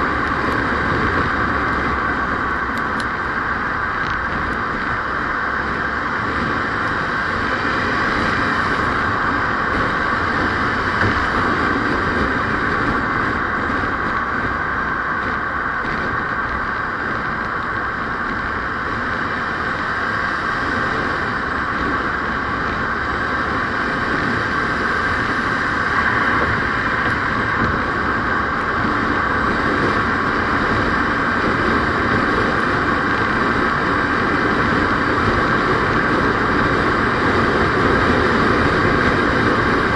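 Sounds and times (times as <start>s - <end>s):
vehicle road and engine noise: 0.0s - 39.9s.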